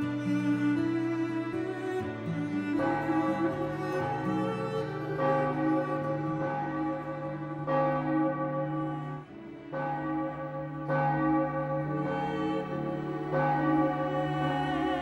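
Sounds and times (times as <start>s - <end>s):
church bells ringing: 0.0s - 15.0s.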